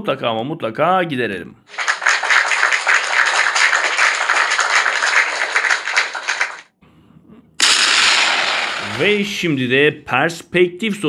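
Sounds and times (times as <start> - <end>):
applause: 1.7 - 6.7
loud rush of noise: 7.6 - 9.2.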